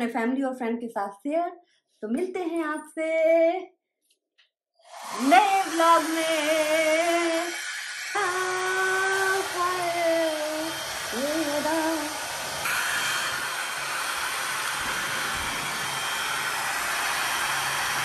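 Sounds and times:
woman singing: 1.2s - 3.7s, 5.2s - 7.6s, 8.2s - 12.2s
hair dryer blowing: 4.8s - 18.0s.

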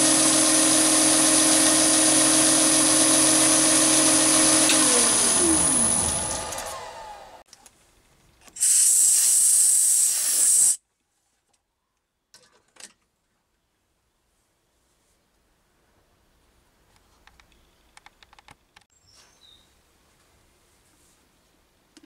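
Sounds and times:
lathe whining and winding down: 0.0s - 7.5s
air blowing hiss: 8.6s - 10.8s.

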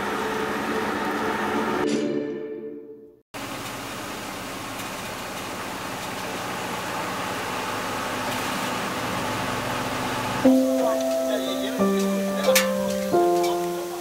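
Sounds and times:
rushing hiss: 10.5s - 14.0s.

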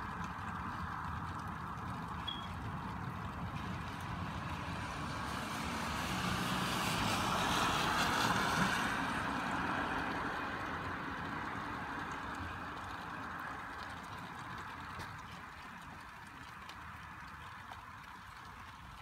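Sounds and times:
rain hiss: 0.0s - 19.0s
car tyres hissing on wet road: 3.4s - 15.8s.

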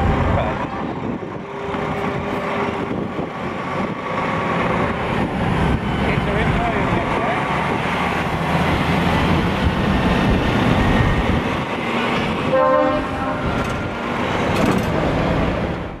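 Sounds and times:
truck engines running: 0.0s - 16.0s
short horn blast: 12.5s - 13.9s.

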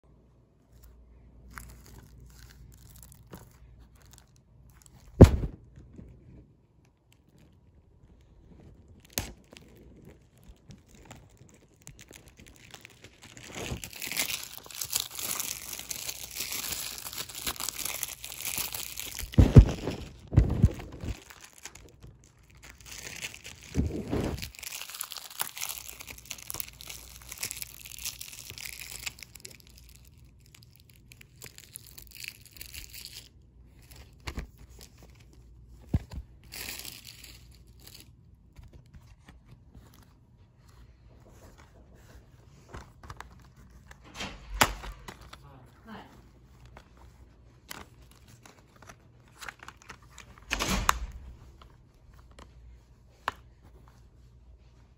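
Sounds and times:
packaging crinkling and tearing: 0.7s - 53.5s
heavy thumps: 5.1s - 6.2s, 19.3s - 21.2s.

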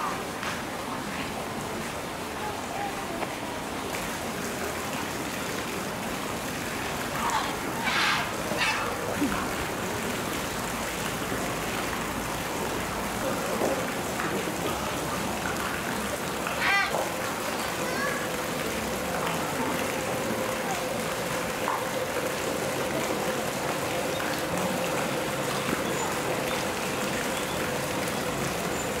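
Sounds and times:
water rushing: 0.0s - 29.0s
onlookers' voices: 2.3s - 4.6s.

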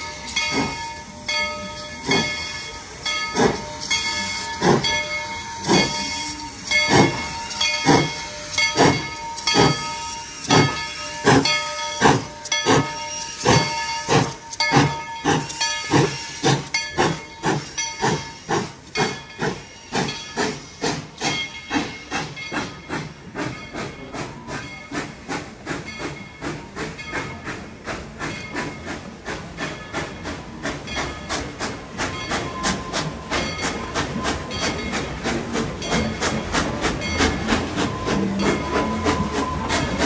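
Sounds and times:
hiss of steam: 0.0s - 40.0s
steam locomotive chuffing: 0.0s - 40.0s.

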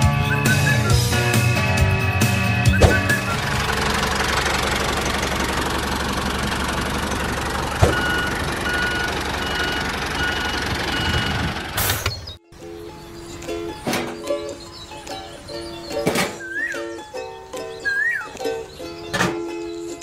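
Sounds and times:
vehicle engine chugging: 0.0s - 12.4s
reversing alarm beeps: 2.7s - 3.4s, 7.7s - 11.5s.

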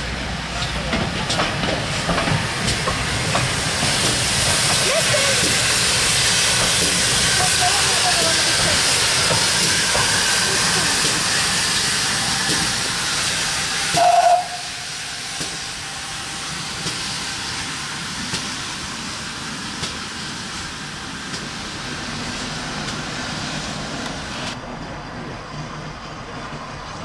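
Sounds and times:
steam engine hissing: 0.0s - 27.0s
steam whistle blast: 13.9s - 15.5s.

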